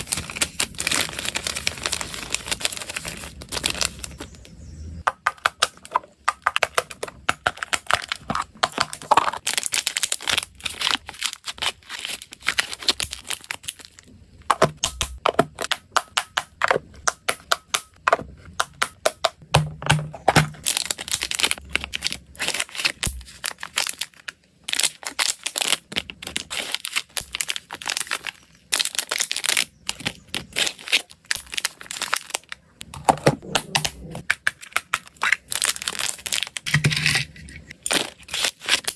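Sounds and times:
dry treats rattling in container: 0:00.0 - 0:04.3, 0:20.5 - 0:32.5.

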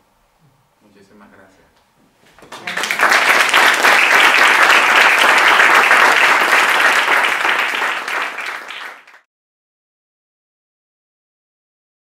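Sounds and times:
audience applauding: 0:02.4 - 0:09.3.

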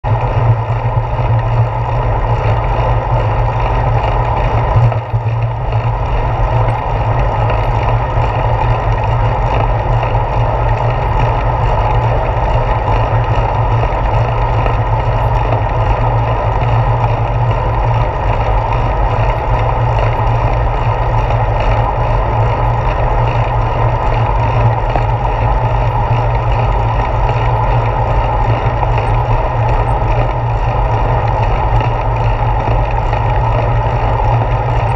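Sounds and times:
wind and road rumble: 0:00.0 - 0:34.9.

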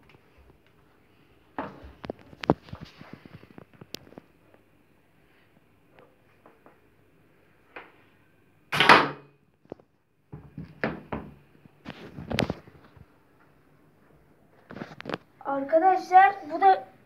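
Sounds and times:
dart hitting wooden board: 0:08.7 - 0:09.3.

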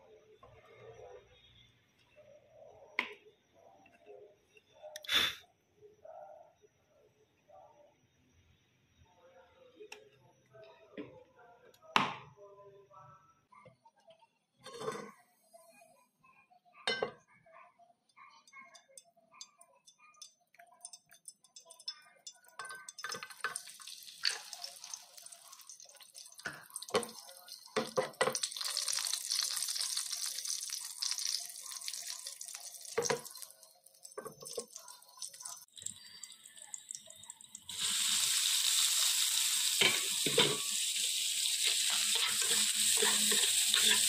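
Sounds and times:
food sizzling in hot oil: 0:20.2 - 0:44.0.

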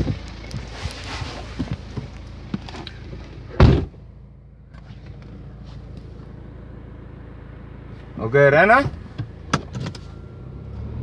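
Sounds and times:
rustling and light knocks: 0:00.0 - 0:03.9
low engine hum: 0:00.0 - 0:11.0
car door slamming: 0:03.5 - 0:04.0.

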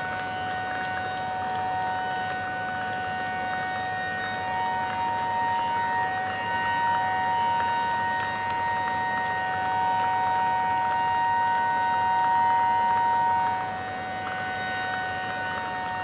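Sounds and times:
crowd clapping: 0:00.0 - 0:16.0
fire engine sirens: 0:00.0 - 0:16.0.

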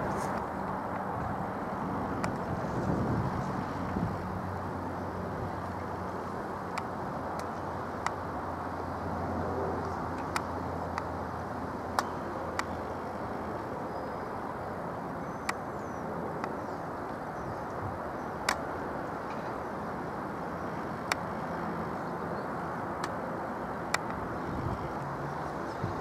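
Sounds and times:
sharp clicks: 0:23.9 - 0:24.2.

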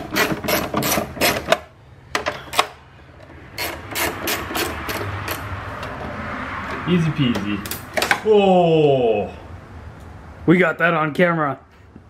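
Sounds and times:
socket ratchet clicking: 0:03.5 - 0:05.5.

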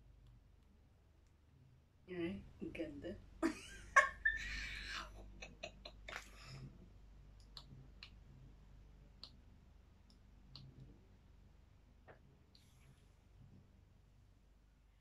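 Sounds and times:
low steady hum: 0:00.0 - 0:15.0
faint small clicks: 0:07.3 - 0:08.2, 0:09.1 - 0:09.4, 0:10.0 - 0:11.0.

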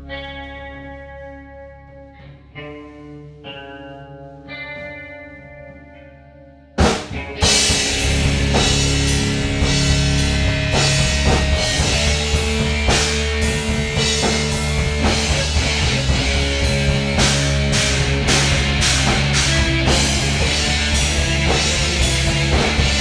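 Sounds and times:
electric guitar chord ringing: 0:00.0 - 0:23.0
rock band playing heavy groove: 0:06.8 - 0:23.0.

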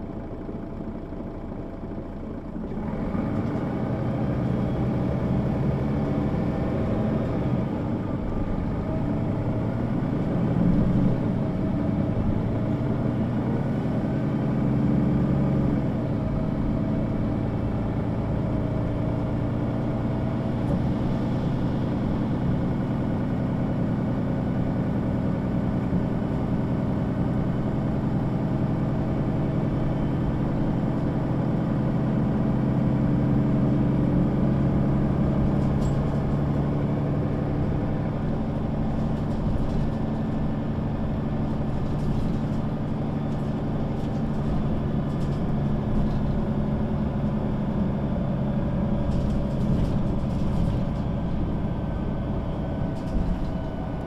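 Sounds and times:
bus diesel engine running: 0:00.0 - 0:54.0
light rattles and ticks: 0:35.4 - 0:36.8, 0:38.1 - 0:40.7, 0:41.4 - 0:47.4, 0:48.9 - 0:51.5, 0:52.9 - 0:53.8.

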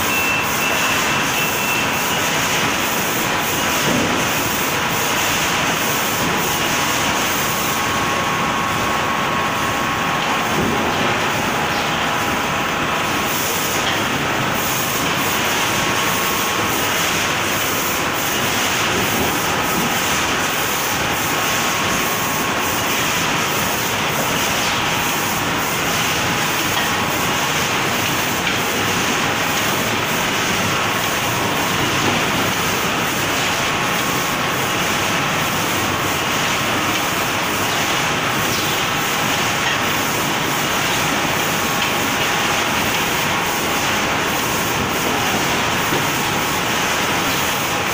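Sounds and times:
packing line machinery running: 0:00.0 - 0:47.9.

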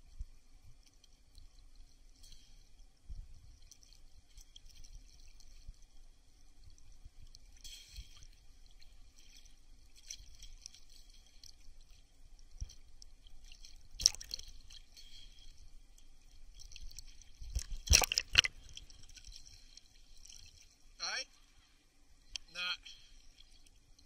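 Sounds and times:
water splashes: 0:06.7 - 0:21.5
small waves lapping: 0:12.8 - 0:21.8.

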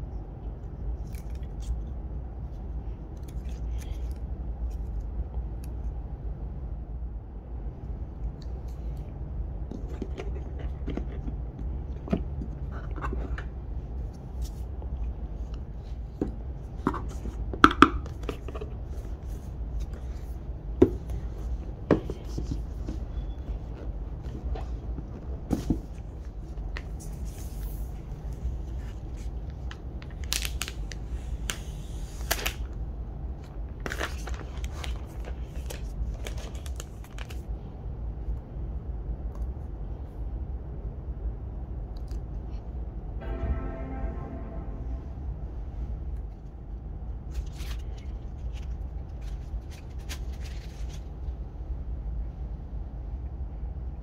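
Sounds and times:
steady low hum: 0:00.0 - 0:54.0
card and plastic rustling: 0:15.4 - 0:32.8, 0:33.4 - 0:37.5, 0:47.3 - 0:51.3.

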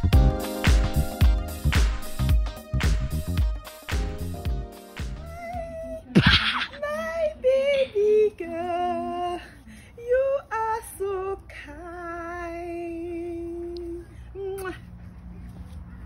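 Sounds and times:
woman singing: 0:06.7 - 0:14.8.

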